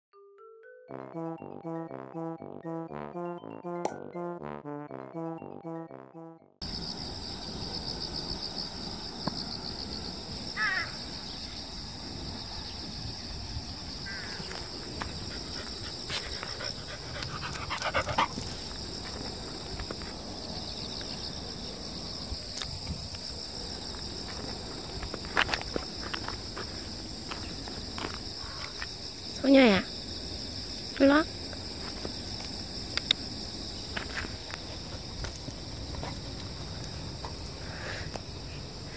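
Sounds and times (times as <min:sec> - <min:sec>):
intro music: 0:00.6 - 0:06.5
insects chirring: 0:06.6 - 0:38.9.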